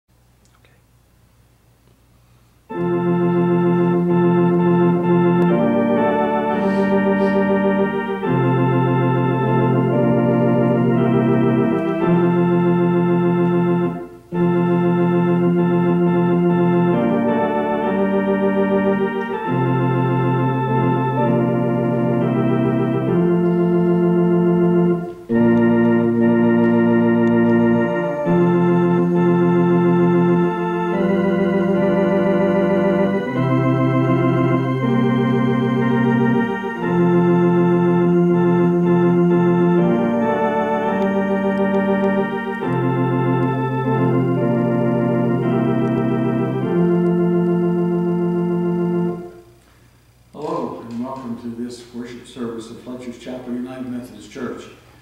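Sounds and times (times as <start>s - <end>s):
organ playing sustained chords: 2.6s - 54.8s.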